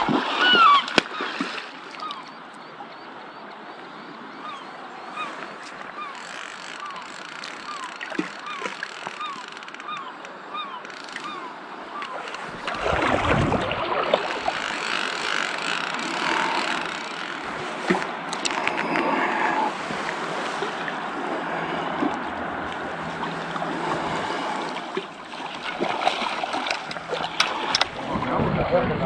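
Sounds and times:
flowing river water: 0:00.0 - 0:29.0
distant boat motor hum: 0:04.4 - 0:29.0
wind buffeting microphone: 0:12.4 - 0:15.0, 0:27.7 - 0:29.0.

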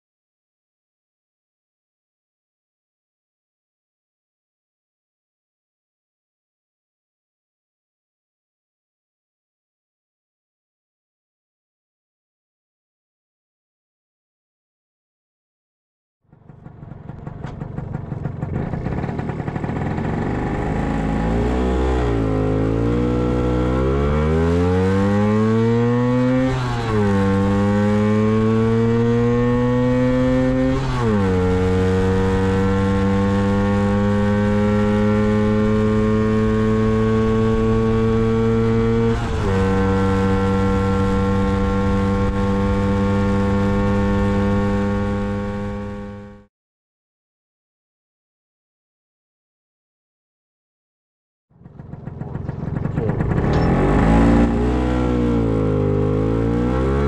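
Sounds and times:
scooter engine accelerating: 0:16.3 - 0:46.5, 0:51.5 - 0:57.0.

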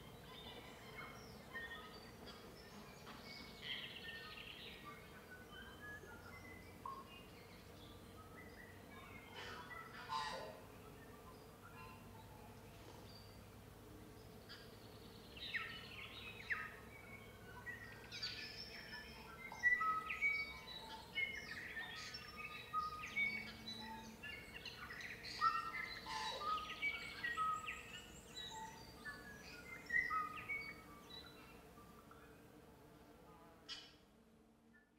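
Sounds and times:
faint steady hum: 0:00.0 - 0:34.9
birds chirping and whistling: 0:15.4 - 0:31.5.

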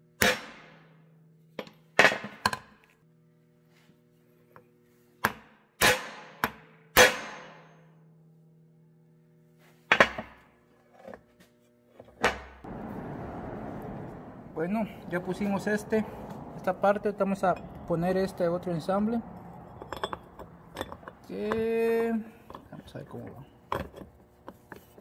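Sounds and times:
low steady hum: 0:12.6 - 0:25.0.

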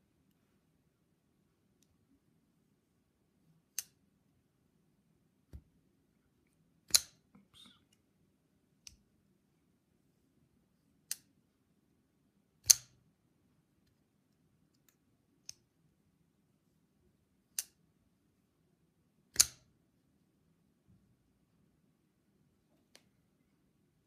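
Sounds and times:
folding knife metallic clicks: 0:06.9 - 0:07.2, 0:12.6 - 0:13.0, 0:19.4 - 0:19.7.

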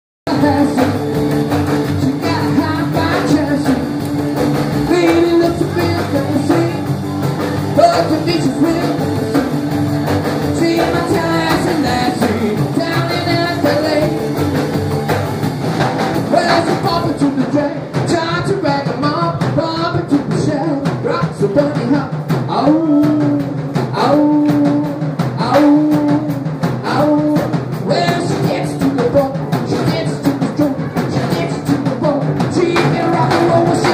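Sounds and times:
man singing: 0:00.3 - 0:14.8, 0:16.2 - 0:33.9
upright double bass: 0:00.3 - 0:18.8, 0:27.8 - 0:33.9
acoustic guitar: 0:00.3 - 0:20.6.

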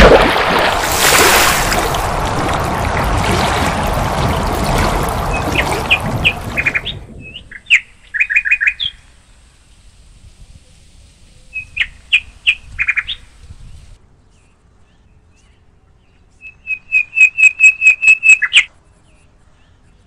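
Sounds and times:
water splash and rushing wash: 0:00.0 - 0:07.7.

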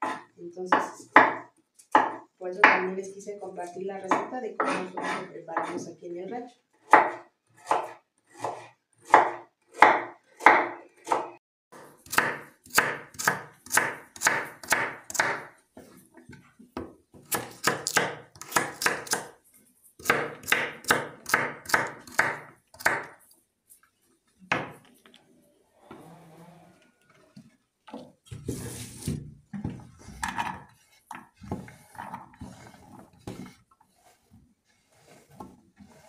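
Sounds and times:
knife chopping on wooden board: 0:06.9 - 0:15.5, 0:16.8 - 0:19.4, 0:20.0 - 0:23.2.

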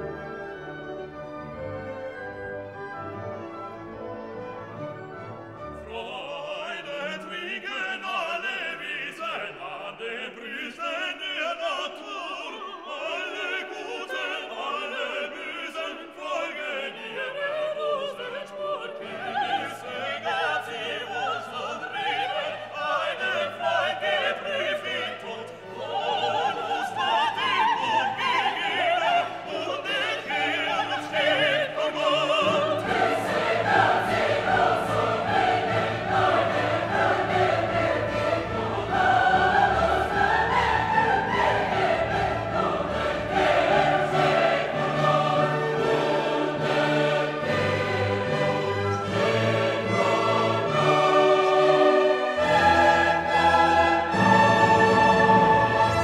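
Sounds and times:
orchestra playing: 0:00.0 - 0:07.6, 0:25.3 - 0:56.0
voices singing: 0:05.8 - 0:56.0.

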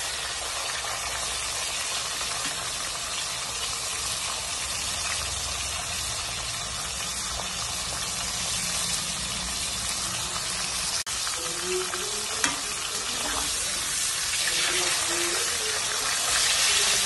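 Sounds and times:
fish frying in hot oil: 0:00.0 - 0:17.0.

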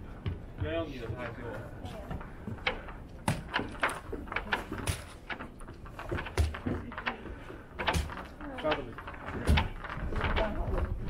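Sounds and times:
footsteps on walkway: 0:00.0 - 0:08.4.

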